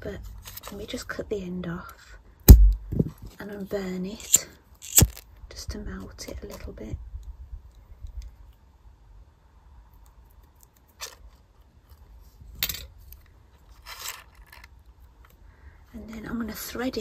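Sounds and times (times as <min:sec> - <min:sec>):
brief rustle: 0:04.2 - 0:05.2.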